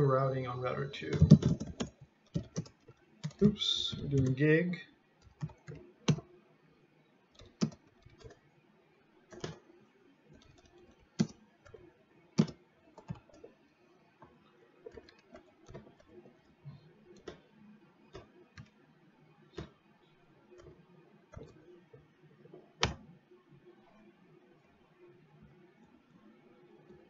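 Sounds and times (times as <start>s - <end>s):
typing on computer keyboard: 1.1s - 4.4s, 5.2s - 6.3s, 7.3s - 8.4s, 9.3s - 9.6s, 10.3s - 13.6s, 14.8s - 16.5s, 18.1s - 18.8s, 20.5s - 21.7s, 22.5s - 23.1s.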